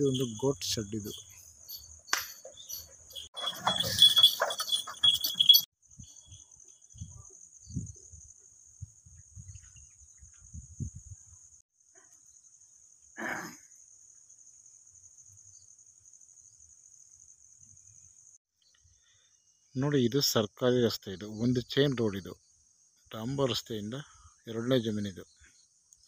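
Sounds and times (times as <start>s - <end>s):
high insect trill: 0.0s - 26.0s
hooves clattering on wooden ramp: 1.7s - 5.6s.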